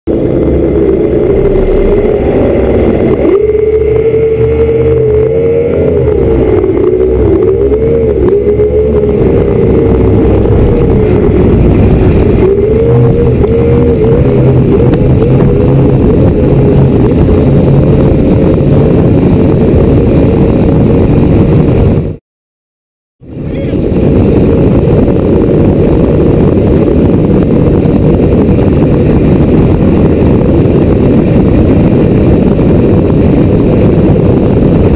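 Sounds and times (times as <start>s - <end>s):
race boat engines: 0.1s - 22.1s.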